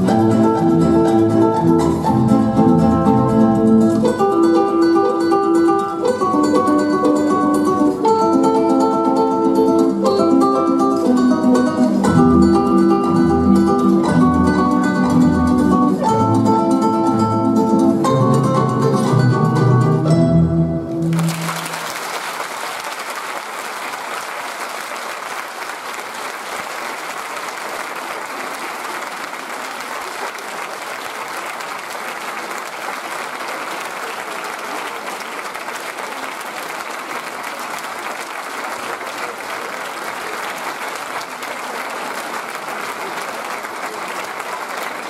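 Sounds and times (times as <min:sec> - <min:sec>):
music: 0:00.0 - 0:21.8
audience applauding: 0:20.9 - 0:45.0.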